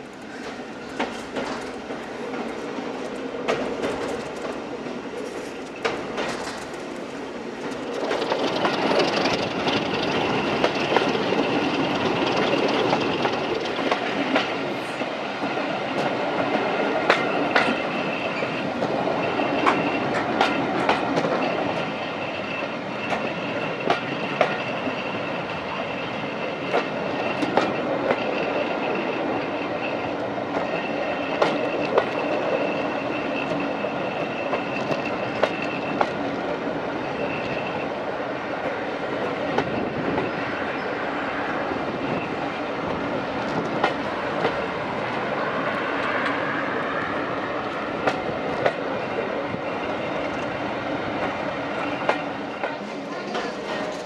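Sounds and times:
train wheels running over track: 0.0s - 54.0s
wheels clicking over rail joints: 0.1s - 14.7s, 26.6s - 37.6s.

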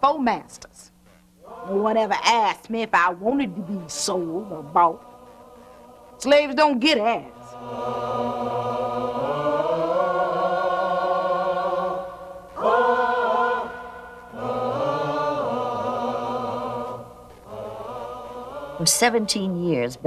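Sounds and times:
person singing slowly: 3.4s - 5.8s.

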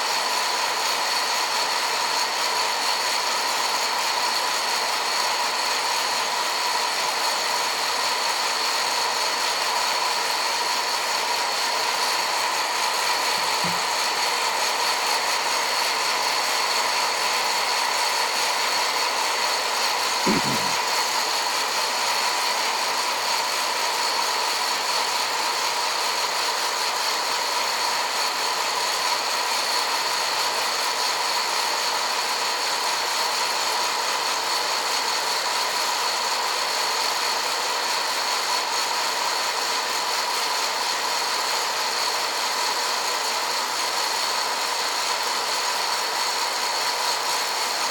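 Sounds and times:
fan whir with high tone: 0.0s - 47.9s.

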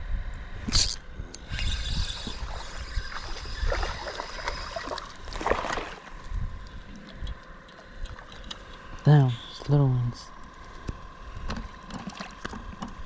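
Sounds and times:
wind rumble on microphone: 0.0s - 9.7s
fishing reel whirring and clicking: 0.7s - 5.3s.

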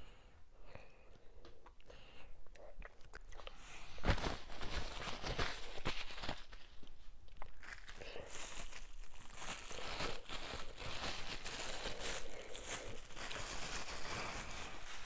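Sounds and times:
plastic film crinkling: 3.9s - 15.0s.

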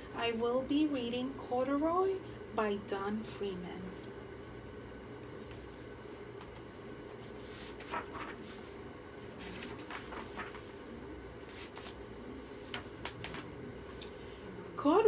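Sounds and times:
low room hum: 0.0s - 15.0s
book pages rustling: 5.3s - 14.1s.

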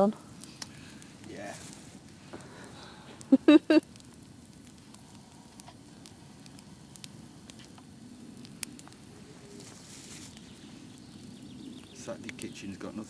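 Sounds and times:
campfire crackling: 0.0s - 13.0s.

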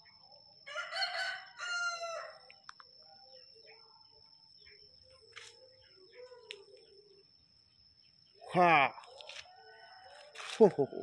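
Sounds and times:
rooster crowing: 0.7s - 2.4s, 9.2s - 11.0s.

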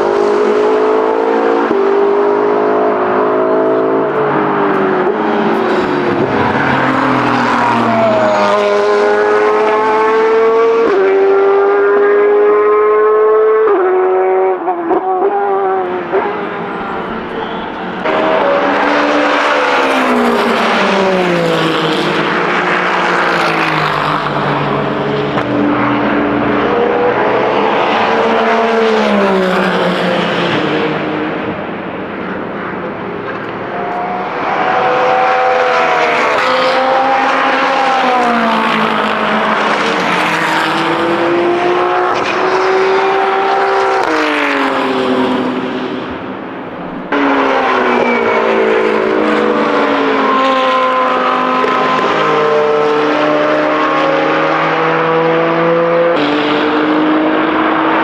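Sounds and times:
loud car engine: 0.0s - 58.0s
race car engines downshifting and accelerating: 0.0s - 58.0s.

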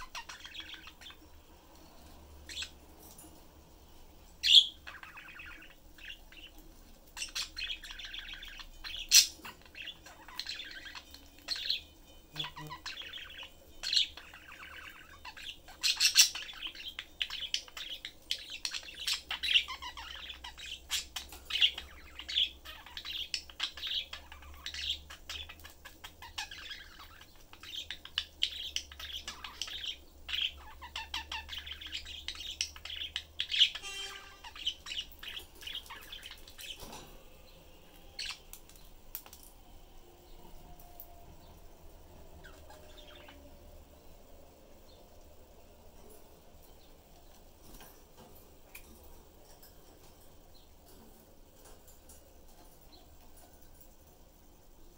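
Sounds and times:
budgerigars chirping and warbling: 0.0s - 3.3s, 4.3s - 39.5s, 42.0s - 44.0s.

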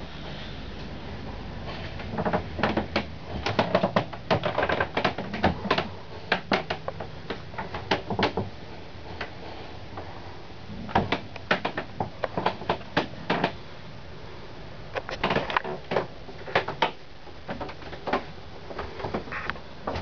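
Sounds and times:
low steady hum: 0.0s - 20.0s
irregular clicks and knocks: 1.7s - 8.6s, 10.7s - 13.6s, 14.9s - 20.0s.

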